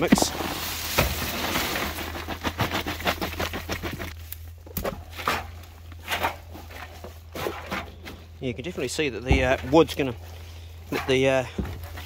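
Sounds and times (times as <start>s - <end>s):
dry leaves and wood chips crackling: 0.0s - 12.0s.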